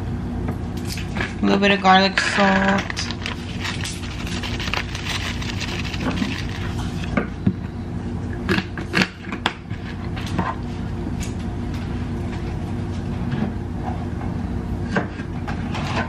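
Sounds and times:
steady low hum: 0.0 - 16.0
plastic bag handled: 2.9 - 7.1.

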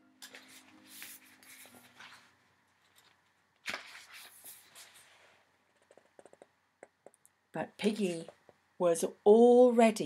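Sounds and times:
book pages rustling: 0.2 - 6.3.

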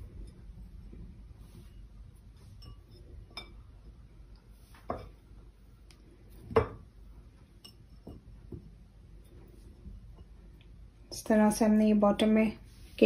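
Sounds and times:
glass cup clinking: 2.6 - 3.7, 6.6 - 6.8.

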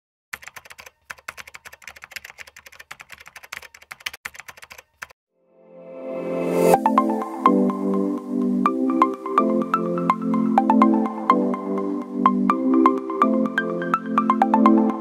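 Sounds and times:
keyboard typing clicks: 0.3 - 5.2.

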